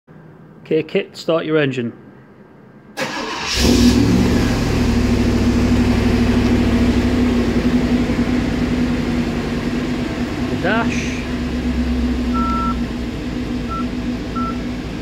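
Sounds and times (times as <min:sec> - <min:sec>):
car engine cranking: 0:03.0 - 0:15.0
car engine revving and idling: 0:03.2 - 0:15.0.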